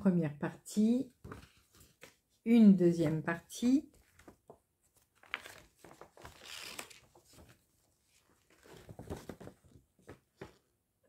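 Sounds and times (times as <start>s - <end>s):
paper rustling: 1.2s - 2.3s, 3.9s - 10.6s.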